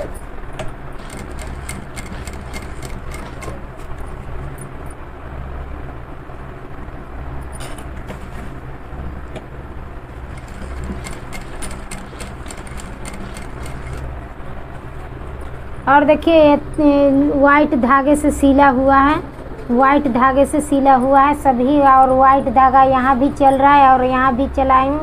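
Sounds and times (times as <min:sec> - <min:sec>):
sewing machine motor hum: 0:00.0 - 0:04.6, 0:09.9 - 0:15.0
sewing machine rapid clicking: 0:00.9 - 0:04.1, 0:10.2 - 0:14.2.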